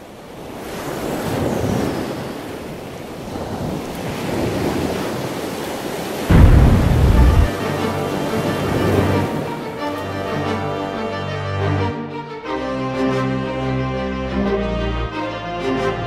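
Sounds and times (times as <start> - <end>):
wind: 0.0 - 16.0
surf: 0.5 - 12.0
sudden deep boom: 6.3 - 7.6.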